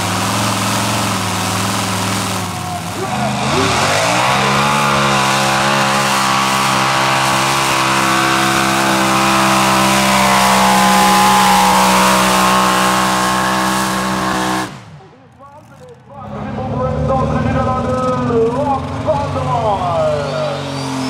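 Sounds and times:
tractor engine at full throttle: 0.0s - 21.0s.

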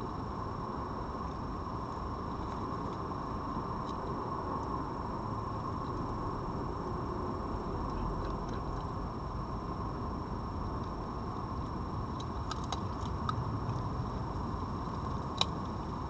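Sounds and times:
low background noise: 0.0s - 16.0s
fox crunching dry food: 7.8s - 9.0s, 11.6s - 15.9s.

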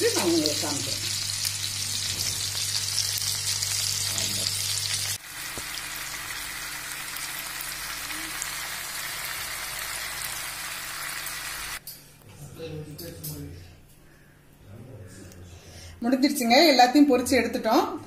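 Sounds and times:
chicken sizzling in hot oil: 0.0s - 11.8s.

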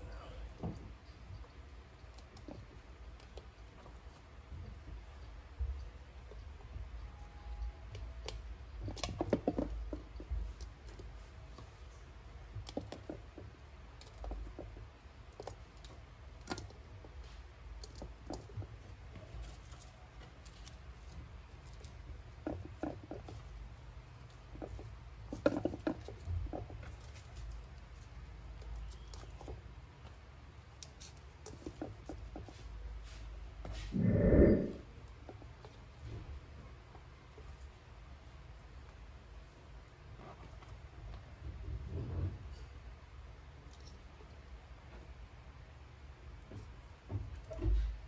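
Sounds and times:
garlic cloves clicking and crackling: 19.3s - 32.4s
low steady hum: 32.7s - 46.2s.

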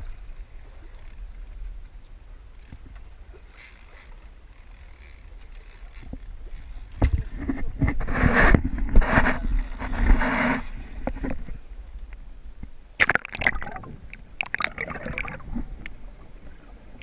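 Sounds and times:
low rumble of wind: 0.0s - 17.0s
water around a boat: 0.0s - 17.0s
rushing splashing water: 13.0s - 15.7s.

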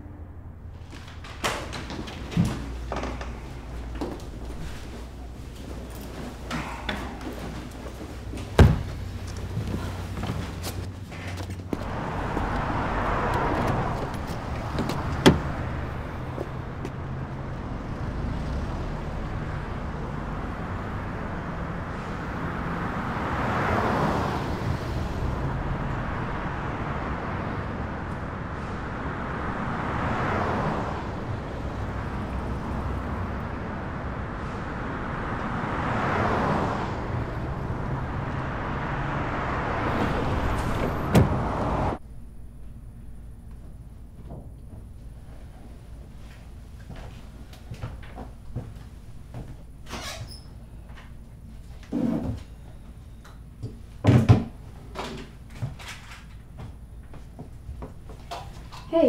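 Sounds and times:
cars passing: 0.0s - 44.2s
low traffic rumble: 0.0s - 59.0s.

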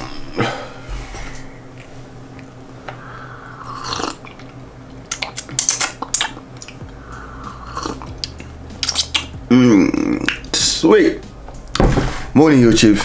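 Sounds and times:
person sipping a drink: 3.4s - 4.6s, 7.4s - 9.3s
mouth and swallow clicks: 4.0s - 6.8s, 7.8s - 9.4s.

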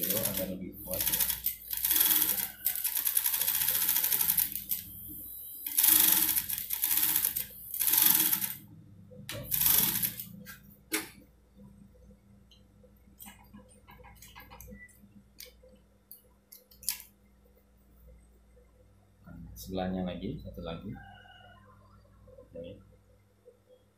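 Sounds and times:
sewing machine stitching: 0.0s - 4.7s, 5.6s - 8.6s, 9.4s - 10.2s.

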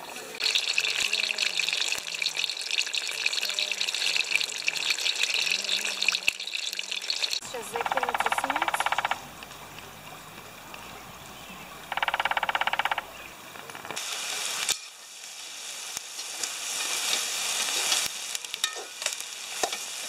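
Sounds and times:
vegetables sizzling in a pot: 0.0s - 12.3s, 12.9s - 20.0s
rhythmic buzz: 7.4s - 13.4s
steady hiss: 7.4s - 20.0s.

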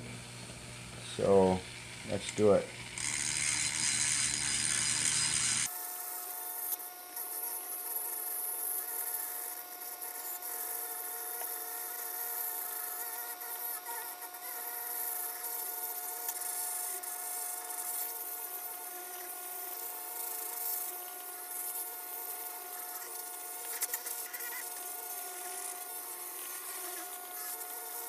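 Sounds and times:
rotary tool grinding metal: 1.2s - 28.0s.

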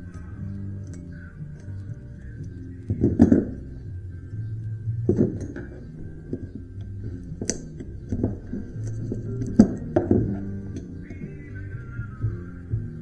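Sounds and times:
music with guitar: 0.0s - 13.0s
metal knocks and clinks: 5.1s - 11.2s.

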